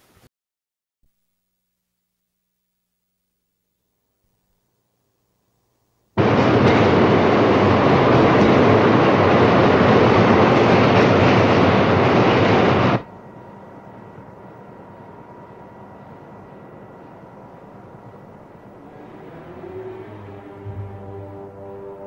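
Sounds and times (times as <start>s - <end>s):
steady hiss: 0.0s - 0.3s
faint steady tone: 1.1s - 6.2s, 13.0s - 22.0s
subway train running: 6.2s - 22.0s.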